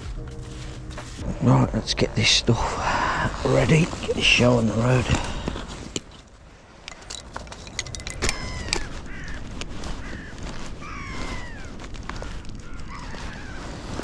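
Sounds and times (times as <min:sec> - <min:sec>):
fishing tackle clicking and scraping: 0:03.7 - 0:11.0
birds calling: 0:07.6 - 0:14.0.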